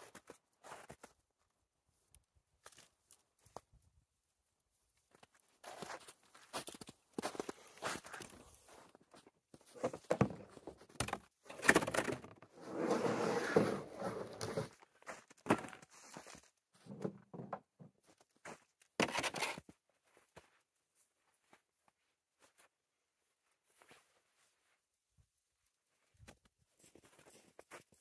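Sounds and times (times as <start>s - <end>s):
camping gear being handled: 5.0s - 28.0s
footsteps on packed snow: 5.6s - 9.0s.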